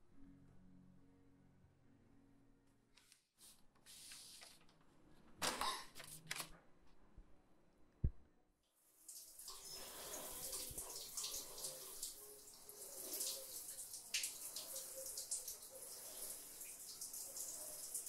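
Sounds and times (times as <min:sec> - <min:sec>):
shower water splashing: 0:09.0 - 0:18.0.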